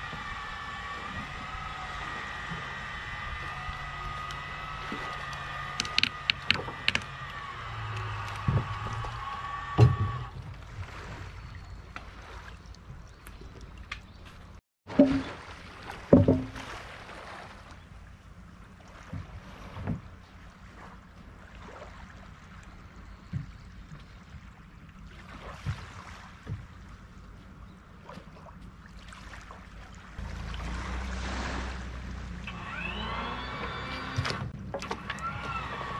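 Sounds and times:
hull and rollers creaking: 0.0s - 11.6s, 30.2s - 35.9s
boat knocking on rollers: 0.0s - 12.2s, 12.8s - 17.6s, 30.2s - 35.9s.

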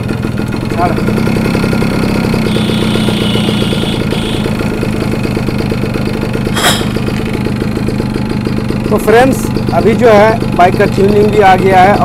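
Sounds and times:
two-stroke engine running: 0.0s - 12.0s
sharp click: 6.6s - 7.3s.

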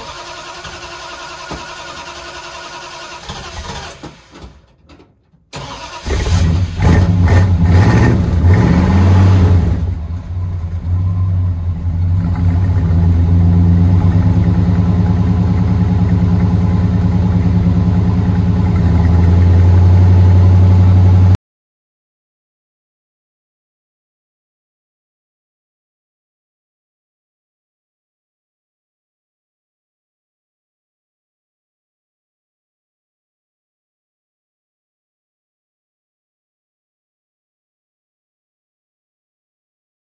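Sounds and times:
car engine starting and idling: 0.0s - 21.4s.

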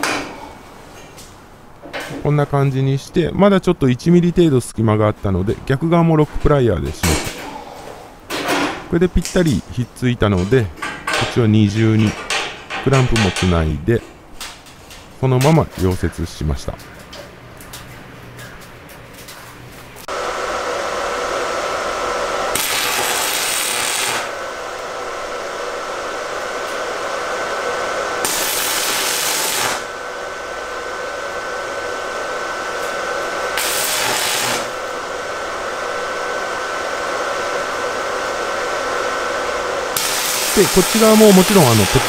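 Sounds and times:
welding arc crackling hiss: 20.0s - 42.0s.

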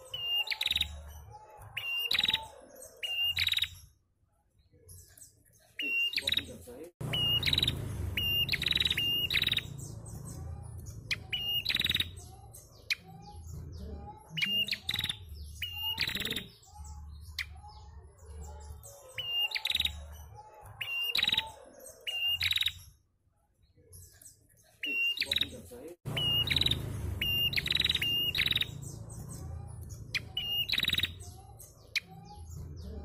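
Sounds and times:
bird chirping: 0.0s - 23.0s, 23.6s - 33.0s
low rumble: 7.0s - 11.3s, 26.1s - 30.4s.

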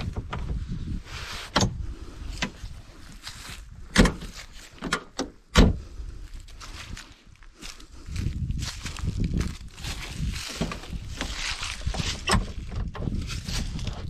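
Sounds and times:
convertible top clunks and knocks: 3.9s - 5.8s.

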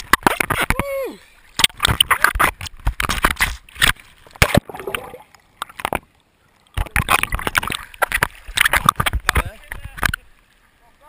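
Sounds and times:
water slapping camera housing: 0.0s - 0.8s, 1.6s - 6.1s, 6.8s - 10.2s.

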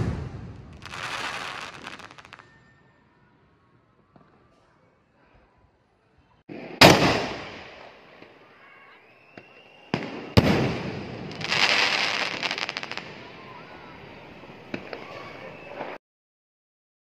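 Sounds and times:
firework launch bang: 0.0s - 2.2s, 6.5s - 7.8s, 9.9s - 11.5s
firework crackling: 0.0s - 2.6s, 10.0s - 16.0s.

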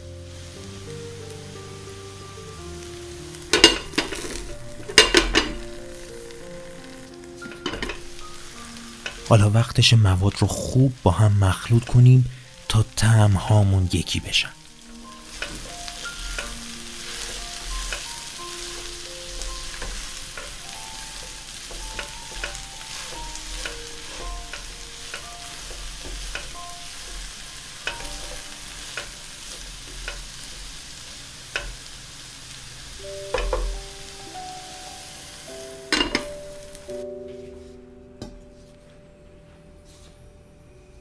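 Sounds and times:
food sizzling in a frying pan: 0.0s - 37.8s
light background music: 0.0s - 41.0s
spatula scraping and tapping pan: 3.5s - 5.9s, 6.8s - 9.3s, 14.9s - 31.9s, 33.3s - 33.9s, 35.9s - 36.4s.

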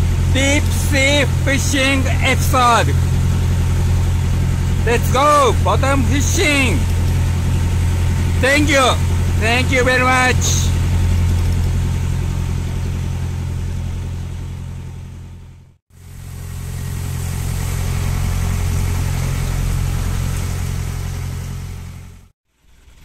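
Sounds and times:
boat engine droning: 0.0s - 23.0s
wind: 0.0s - 23.0s
water hiss: 16.0s - 23.0s.

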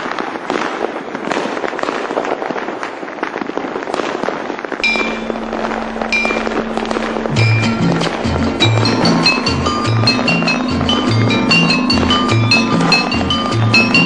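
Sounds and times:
fireworks popping and crackling: 0.0s - 14.0s
music with held note: 4.8s - 14.0s.

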